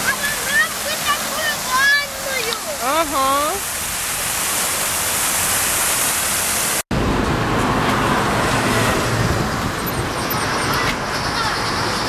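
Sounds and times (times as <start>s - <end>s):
city street traffic: 0.0s - 3.6s, 6.9s - 12.0s
fountain jets splashing: 0.0s - 12.0s.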